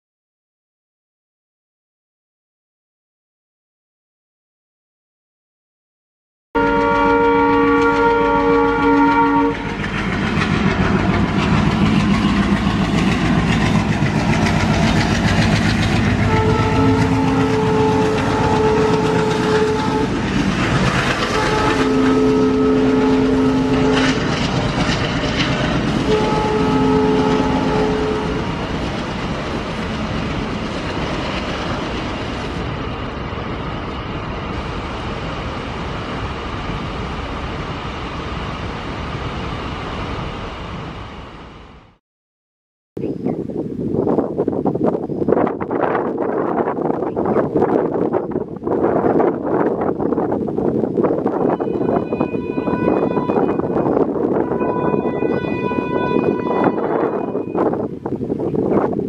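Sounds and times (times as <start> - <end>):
locomotive horn blasts: 6.6 - 9.8, 16.2 - 20.2, 21.2 - 24.6, 26.0 - 28.7, 51.4 - 57.8
locomotive engine rumble: 6.7 - 41.0
wheels clattering on rails: 8.0 - 22.4, 23.6 - 34.3.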